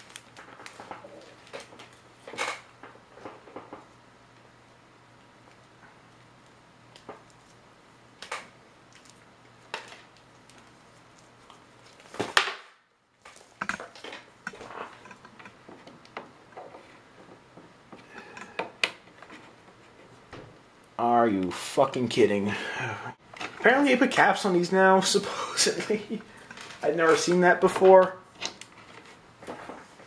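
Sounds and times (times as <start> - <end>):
plastic items clicking and clattering: 0.0 - 3.8.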